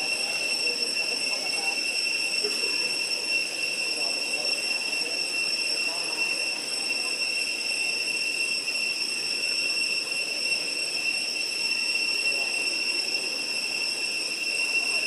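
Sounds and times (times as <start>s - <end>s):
faint background murmur: 0.0s - 15.0s
insects droning: 0.0s - 15.0s.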